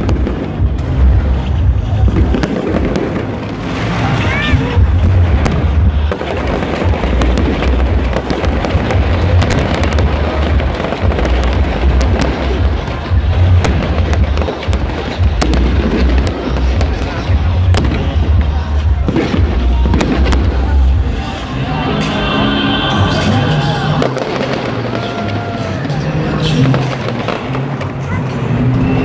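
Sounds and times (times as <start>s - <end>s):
low rumble of firework bursts: 0.0s - 21.3s
fireworks popping and crackling: 0.0s - 21.6s, 23.1s - 29.0s.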